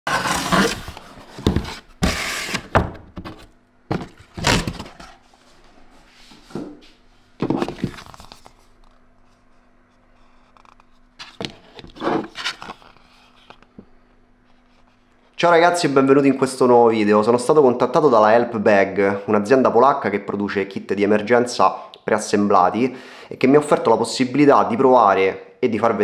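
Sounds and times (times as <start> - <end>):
plastic box thunks and scrapes: 0.1 - 5.2, 7.4 - 8.1, 11.2 - 12.8
card rustling: 7.4 - 9.0, 10.5 - 13.7.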